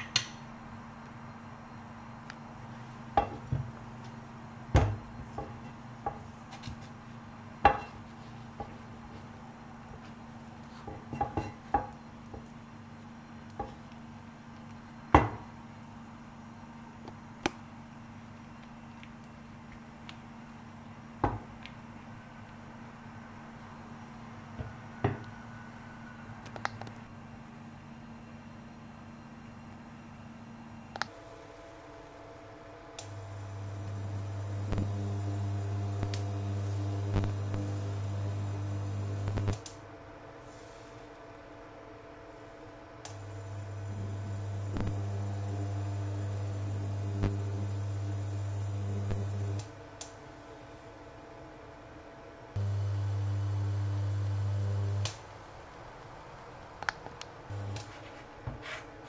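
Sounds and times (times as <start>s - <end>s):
steady low hum: 11.8s - 40.2s, 42.8s - 51.1s, 52.4s - 55.7s, 57.4s - 59.0s.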